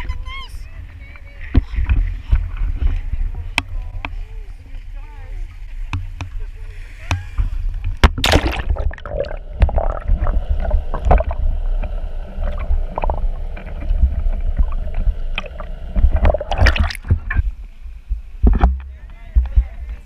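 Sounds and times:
camera splashing into water: 8.0s - 10.2s, 15.4s - 17.2s
muffled underwater gurgling: 8.2s - 17.4s.

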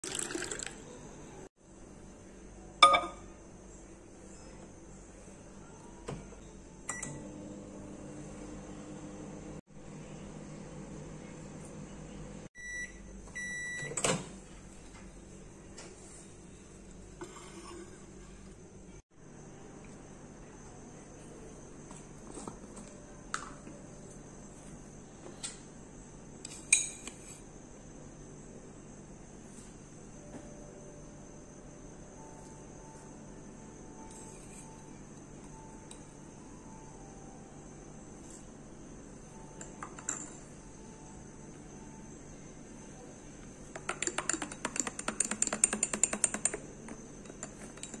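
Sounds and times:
teaspoon clinking in a mug: 43.7s - 46.6s, 47.2s - 48.0s
metal teaspoon clinking: 47.2s - 48.0s.

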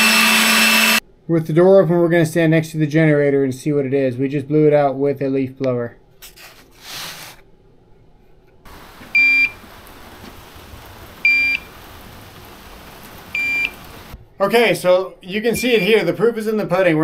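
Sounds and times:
steady hiss: 8.7s - 14.2s
high-pitched warning beeps: 9.1s - 9.6s, 11.2s - 11.7s, 13.3s - 14.0s.

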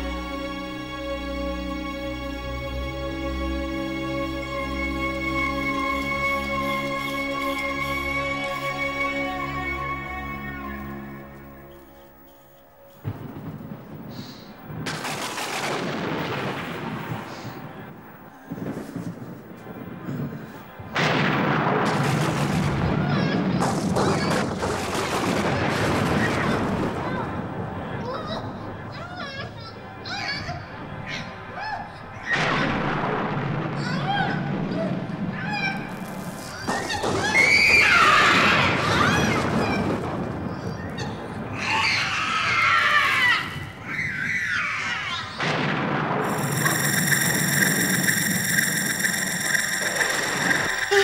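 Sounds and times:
faint wavering shrieks: 46.3s - 51.0s.

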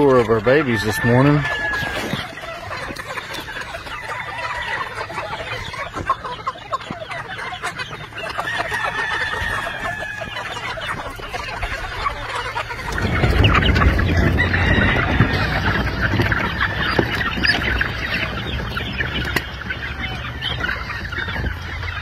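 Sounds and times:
chickens clucking and peeping: 0.0s - 22.0s
young rooster crowing: 0.6s - 2.2s, 8.5s - 10.5s, 14.1s - 16.0s.

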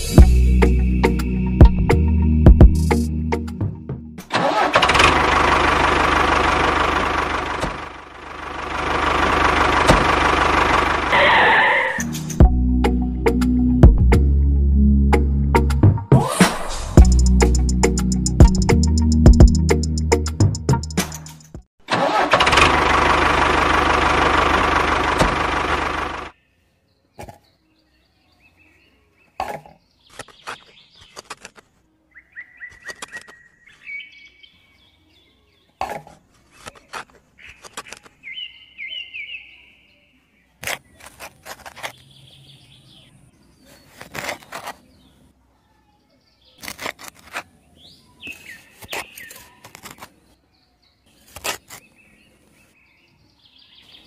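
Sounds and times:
toy tractor motor running: 4.3s - 12.0s, 21.9s - 26.3s
birds chirping: 26.3s - 41.2s, 41.8s - 46.7s, 47.4s - 54.0s
pebbles and shovel clicking in sand: 29.4s - 31.9s, 32.6s - 33.9s, 35.8s - 38.3s, 40.6s - 42.4s, 43.6s - 45.2s, 46.5s - 52.6s.

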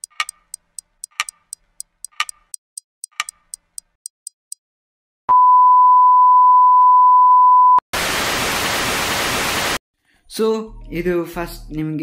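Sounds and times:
clock ticking: 0.0s - 4.6s.

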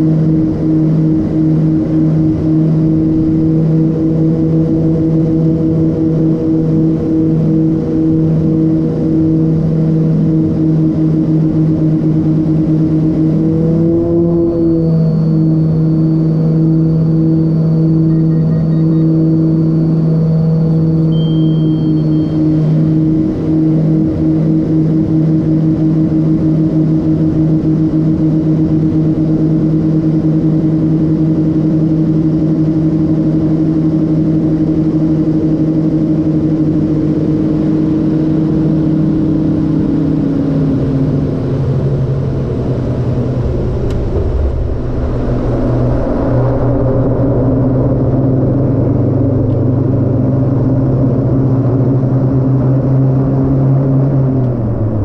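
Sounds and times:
turboprop engines droning: 0.0s - 55.0s
wheels rumbling on runway: 0.0s - 55.0s
wide rushing noise: 42.1s - 49.2s.

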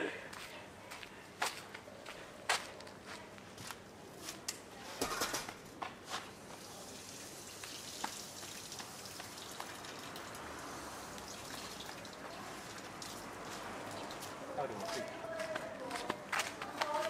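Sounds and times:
steady outdoor hiss: 0.0s - 17.0s
footsteps on sandy ground: 0.3s - 4.5s, 13.5s - 17.0s.

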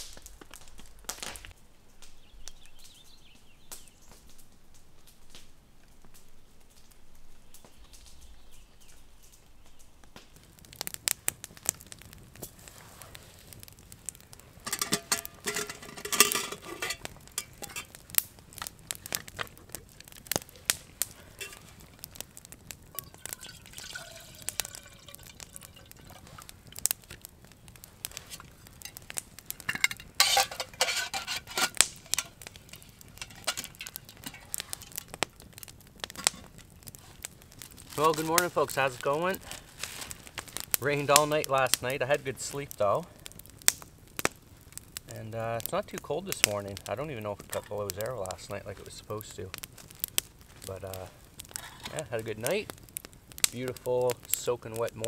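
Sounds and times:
campfire crackling and popping: 0.0s - 55.0s
metal pot and kettle clattering: 14.6s - 18.0s, 21.4s - 21.7s, 22.9s - 26.3s, 29.6s - 32.4s, 33.2s - 35.0s.

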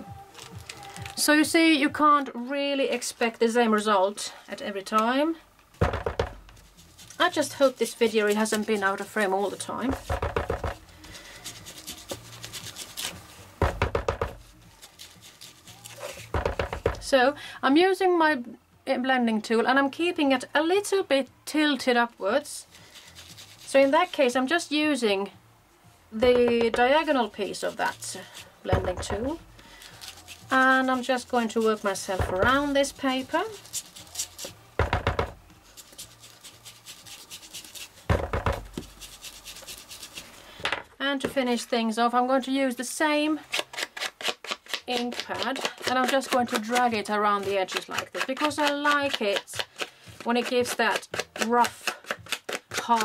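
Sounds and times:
foam tool scuffing on paper: 6.0s - 17.1s, 22.7s - 24.4s, 26.6s - 40.4s, 43.5s - 53.0s
faint rubbing: 6.3s - 13.6s, 22.7s - 24.4s.

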